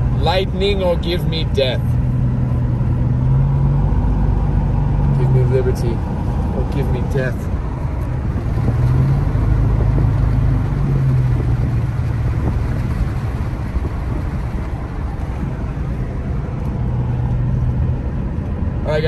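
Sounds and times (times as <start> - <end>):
wind noise: 7.5 - 18.8.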